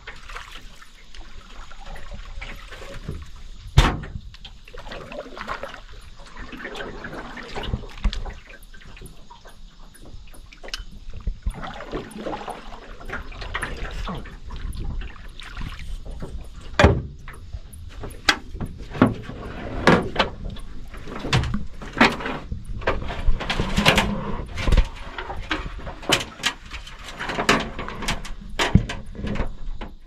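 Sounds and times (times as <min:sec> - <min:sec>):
sharp knocks and bumps: 0:03.8 - 0:04.3
rustling and scraping: 0:13.0 - 0:30.0.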